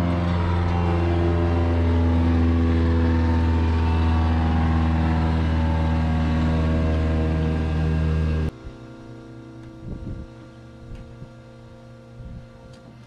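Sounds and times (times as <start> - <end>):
aircraft piston engine idling: 0.0 - 8.5.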